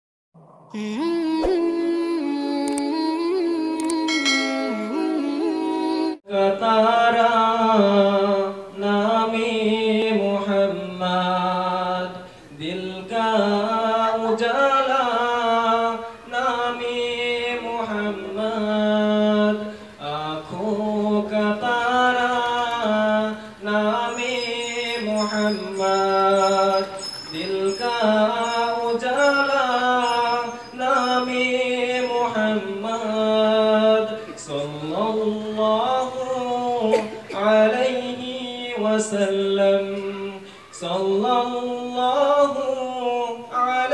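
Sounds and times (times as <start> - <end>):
man singing into a microphone: 0.8 - 43.9.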